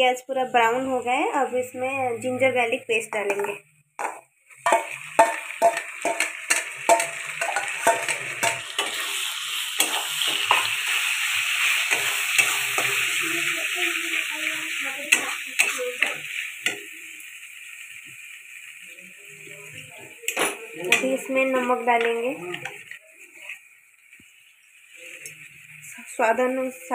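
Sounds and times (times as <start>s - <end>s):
onions sizzling in hot oil: 0.0s - 26.9s
metal spatula tapping a pan: 3.2s - 11.0s, 11.9s - 13.5s, 15.1s - 17.0s, 20.3s - 21.3s, 21.9s - 22.9s.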